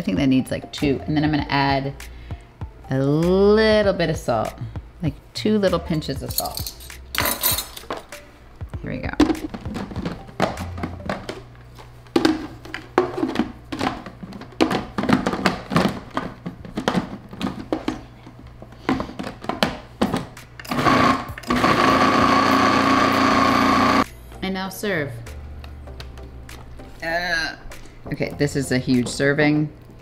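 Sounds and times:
blender motor running: 20.7 - 24.0.

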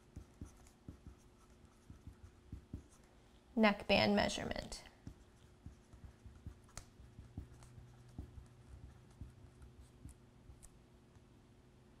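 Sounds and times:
marker pen writing on plastic: 0.0 - 3.0, 4.9 - 10.7
low steady hum: 0.0 - 12.0.

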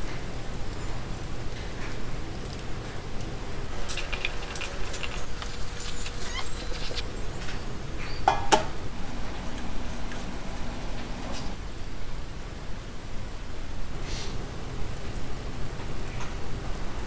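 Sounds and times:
utensils and dishes clinking: 0.0 - 11.8.

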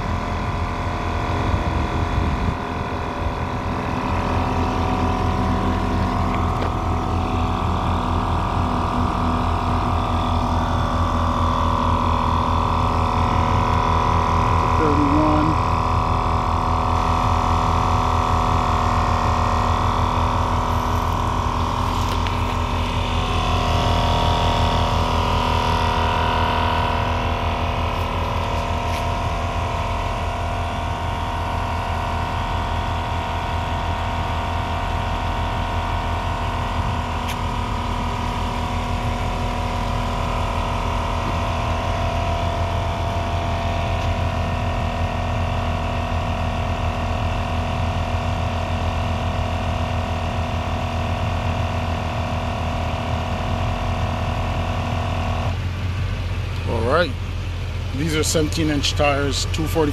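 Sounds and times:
portable tire inflator pumping: 1.2 - 33.0, 34.5 - 49.0.

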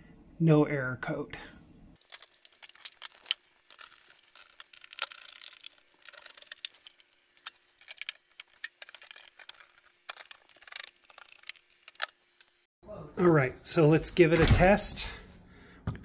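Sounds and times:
clicks and scrapes: 2.0 - 12.7.

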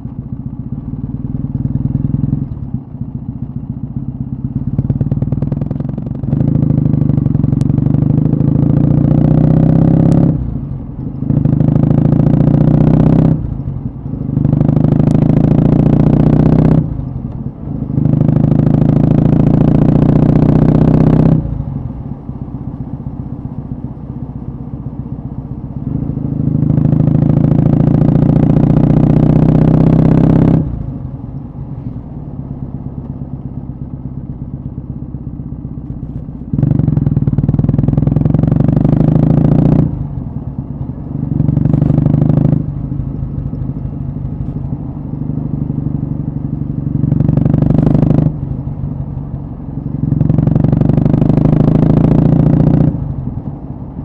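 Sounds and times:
motorcycle engine exhaust: 0.0 - 54.0.

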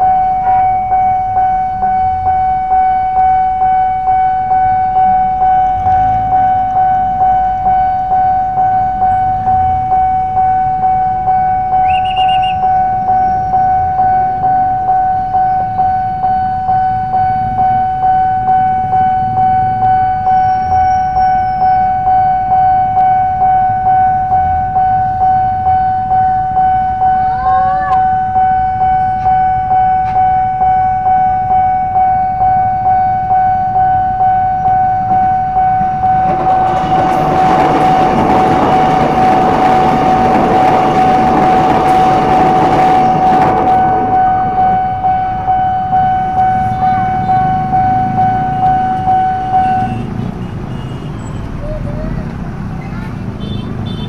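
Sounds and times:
level crossing bell ringing: 0.0 - 20.7, 21.3 - 50.0
low traffic rumble: 0.0 - 54.0
short high beep: 11.4 - 36.3.

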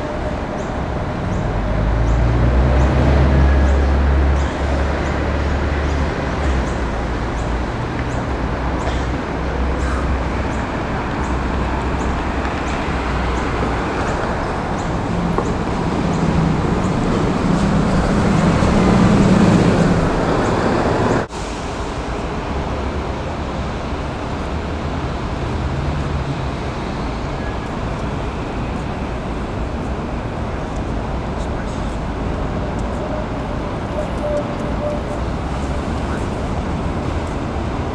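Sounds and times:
city street traffic: 0.0 - 37.9
vehicle passing close by: 10.8 - 21.3.

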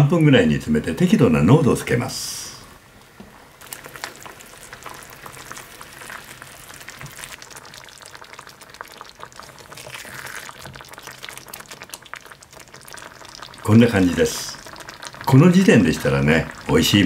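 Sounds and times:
sauce bubbling in a frying pan: 3.6 - 17.0
spatula stirring sauce: 3.8 - 13.7.

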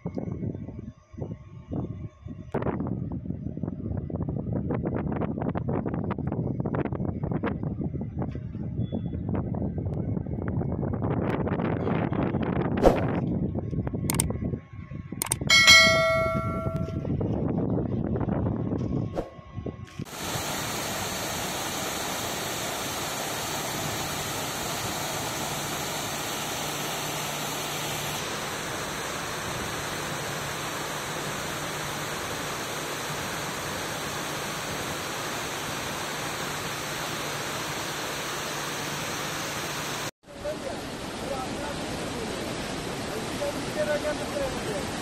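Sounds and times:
river rushing: 20.1 - 45.0.

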